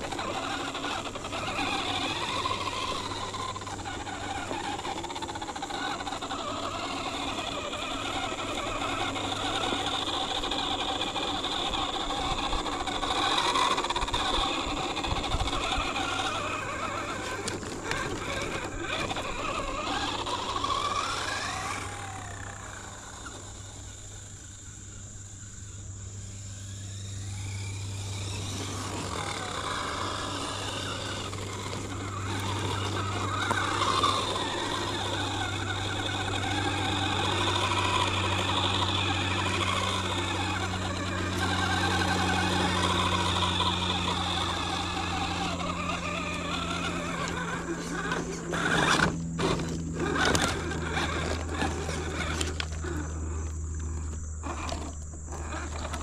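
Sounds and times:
electric motor and gears whining: 0.0 - 56.0.

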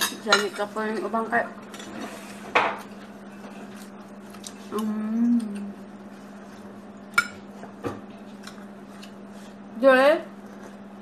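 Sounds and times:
steady low hum: 0.0 - 11.0
woman humming: 4.7 - 5.9.

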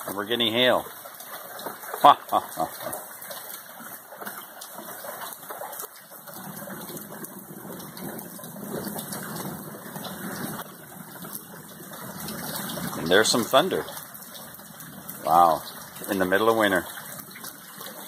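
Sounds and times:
hail pattering on concrete: 0.0 - 18.0
thunder rumbling: 6.4 - 13.9.

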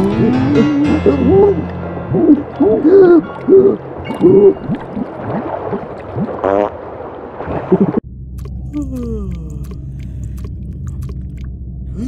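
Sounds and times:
cartoon character moans and hums: 8.6 - 9.9.

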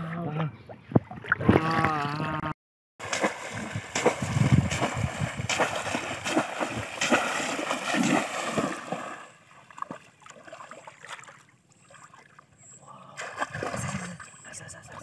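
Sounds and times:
fish trap plunging into water: 3.0 - 10.0
splashing shallow water: 3.0 - 15.0.

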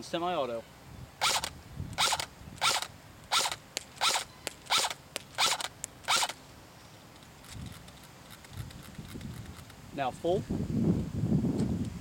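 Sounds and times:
airsoft rifle shots whirring: 1.2 - 6.4
sharp clicks: 1.2 - 6.4.

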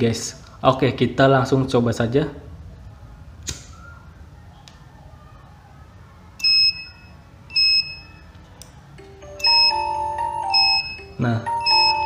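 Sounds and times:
short high-pitched beeps: 6.4 - 8.2, 9.4 - 12.0.

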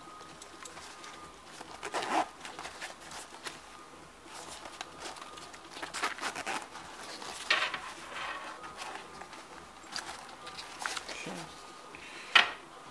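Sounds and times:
fabric bag rustling: 0.0 - 11.8
zipper scratching: 1.6 - 3.6, 4.3 - 9.1
zipper and strap clicks: 1.7 - 3.2, 5.8 - 6.8.

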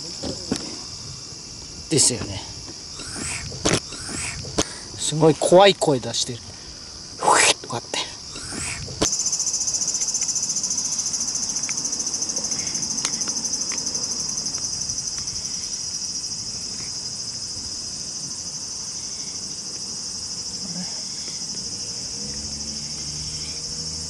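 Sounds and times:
insects buzzing high-pitched: 0.0 - 24.0.

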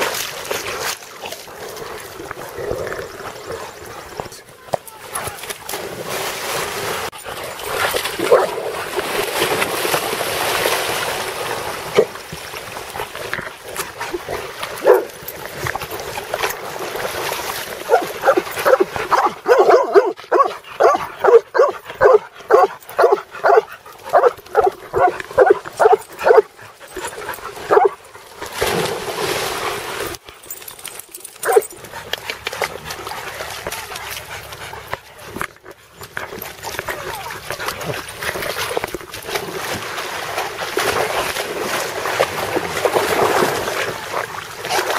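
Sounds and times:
dog splashing into water: 5.1 - 20.4, 27.5 - 30.9, 36.0 - 44.9
dogs barking: 8.2 - 8.6, 14.8 - 15.1, 17.9 - 26.5, 27.6 - 28.0.

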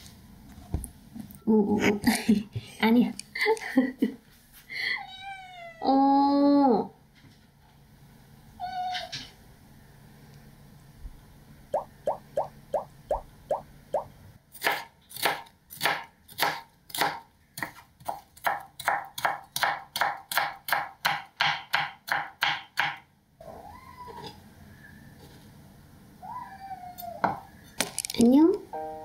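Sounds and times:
knife chopping on cutting board: 14.6 - 23.0.

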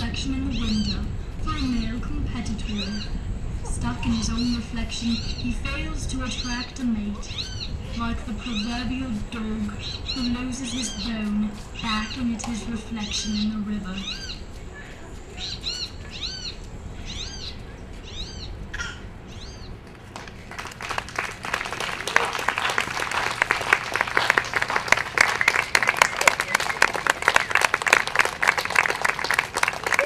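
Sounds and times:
arching bird calls: 0.3 - 14.6, 15.3 - 30.0
audience applause: 19.8 - 30.0.

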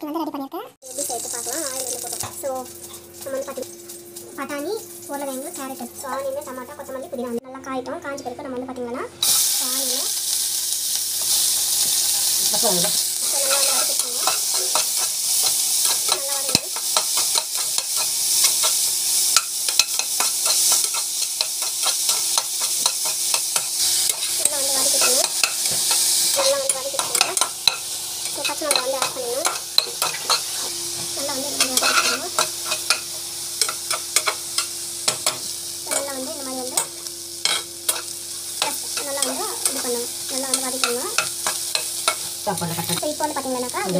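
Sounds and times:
onions sizzling in hot oil: 0.8 - 7.4, 9.2 - 43.9
spoon scraping a pot: 12.9 - 18.8, 31.6 - 35.5.

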